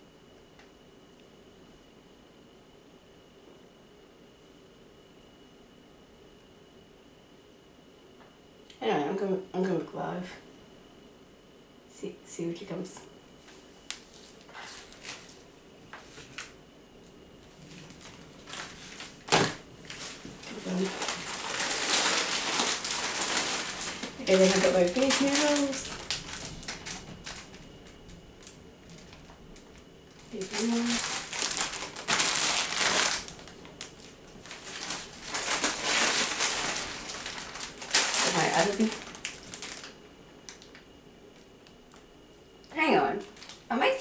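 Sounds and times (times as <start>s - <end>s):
packaging rustling: 13.9s - 15.4s, 17.4s - 40.8s, 43.2s - 43.7s
plastic bags crinkling: 13.9s - 15.4s, 17.4s - 40.8s, 43.2s - 43.7s.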